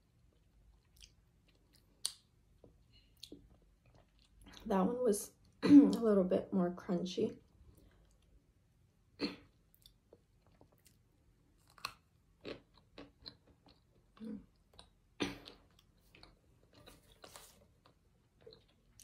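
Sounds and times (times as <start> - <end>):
chewing crunchy food: 0.1 - 4.7, 9.4 - 19.0.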